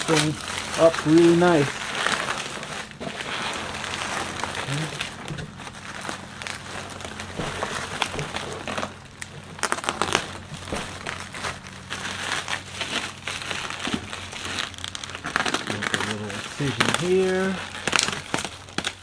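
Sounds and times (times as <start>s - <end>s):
bubble wrap crinkling: 0.0s - 19.0s.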